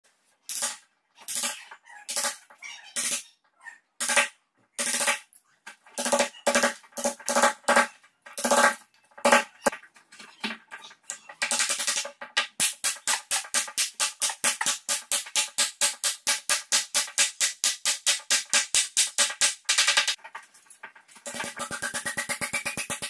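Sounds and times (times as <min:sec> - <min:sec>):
hammer striking chisel: 0:04.0 - 0:05.2, 0:06.0 - 0:09.7.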